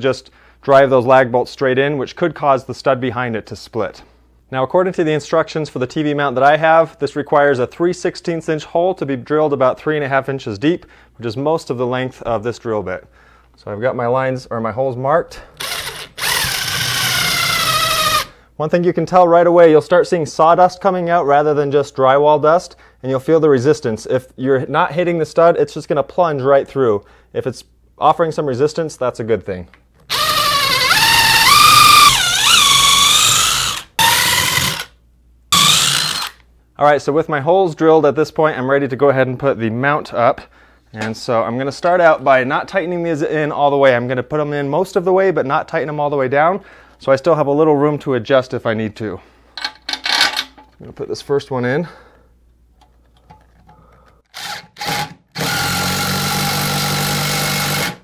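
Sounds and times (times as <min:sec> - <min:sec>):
cordless drill drilling into wood: 0:15.6 - 0:18.3, 0:30.1 - 0:34.9, 0:35.6 - 0:36.4, 0:54.3 - 0:58.0
impact driver driving a bolt: 0:35.6 - 0:36.4.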